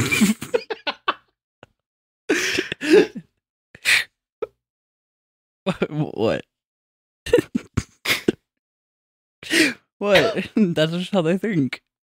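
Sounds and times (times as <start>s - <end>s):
men's vocal reactions: 9.5s - 10.4s.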